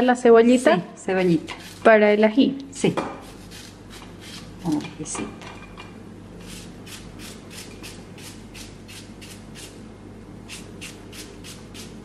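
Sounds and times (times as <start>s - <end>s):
knife cutting onion: 1.2s - 2.0s, 3.1s - 5.0s, 6.4s - 9.8s, 10.5s - 12.0s.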